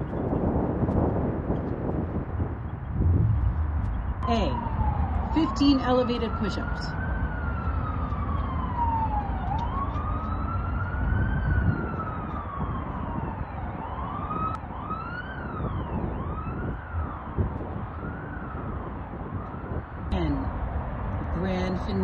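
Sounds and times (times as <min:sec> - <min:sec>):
low rumble: 0:02.0 - 0:05.3
emergency vehicle siren wailing: 0:03.3 - 0:20.8.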